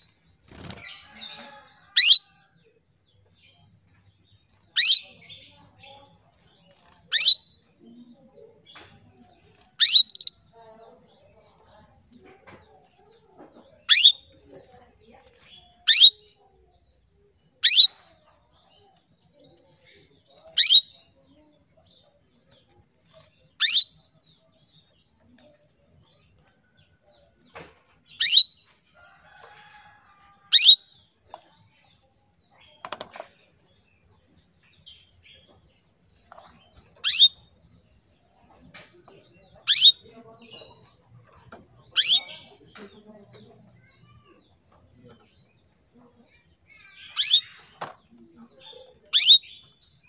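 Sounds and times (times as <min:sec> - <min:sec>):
faint bird chirps: 0:00.0 - 0:02.5, 0:03.4 - 0:11.7, 0:12.8 - 0:42.8, 0:43.4 - 0:50.0
canary call notes: 0:01.4 - 0:02.3, 0:07.1 - 0:07.5, 0:09.8 - 0:10.4, 0:13.9 - 0:14.3, 0:15.9 - 0:16.3, 0:23.6 - 0:24.0, 0:28.1 - 0:28.6, 0:30.4 - 0:30.9, 0:37.0 - 0:37.4, 0:39.6 - 0:40.1, 0:41.9 - 0:42.5, 0:49.1 - 0:49.5.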